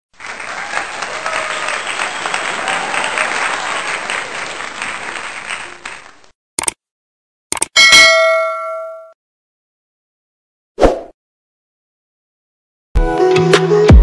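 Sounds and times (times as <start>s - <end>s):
crowd applause: 0.1s - 6.3s.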